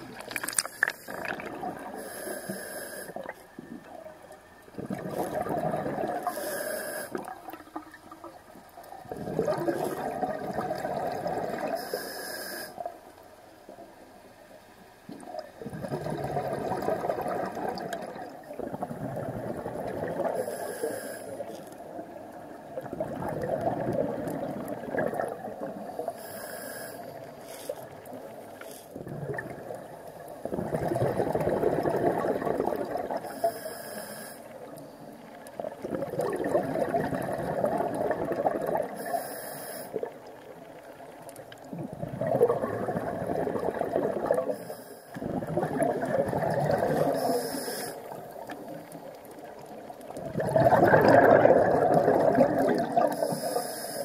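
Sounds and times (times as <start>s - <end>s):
underwater bubbles burbling: 0.0s - 2.1s, 3.2s - 6.5s, 7.1s - 11.9s, 15.1s - 20.7s, 21.4s - 26.3s, 27.1s - 33.6s, 34.5s - 39.3s, 39.9s - 53.6s
regulator hiss: 2.0s - 3.3s, 6.2s - 7.2s, 11.8s - 12.9s, 20.4s - 21.6s, 26.0s - 27.7s, 33.2s - 34.5s, 39.0s - 40.0s, 47.1s - 48.2s, 53.2s - 54.0s.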